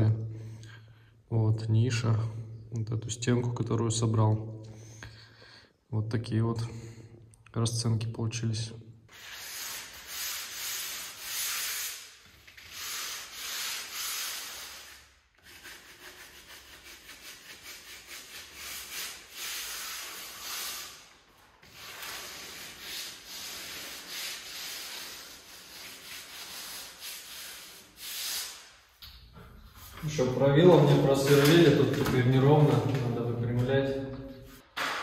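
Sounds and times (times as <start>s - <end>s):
hand tool rubbing on hard surface: 9.1s - 21.1s, 21.7s - 28.6s.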